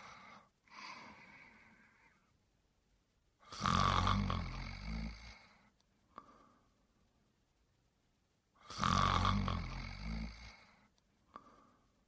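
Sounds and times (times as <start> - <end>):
faint breath: 0.0 - 2.4, 5.1 - 7.0, 10.4 - 12.0
person snoring: 3.4 - 5.7, 8.6 - 11.7.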